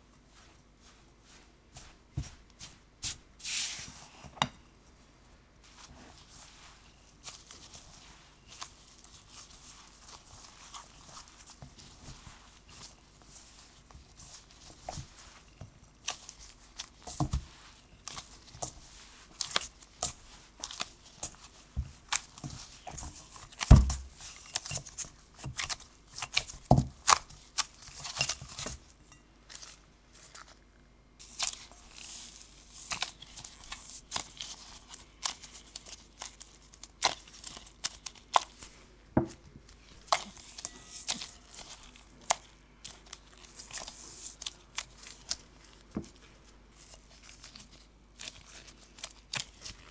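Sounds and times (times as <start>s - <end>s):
hands kneading crumbly dough: 0.0s - 49.9s
dull thumps of pressed dough: 1.7s - 3.1s, 13.9s - 28.8s, 37.8s - 40.4s.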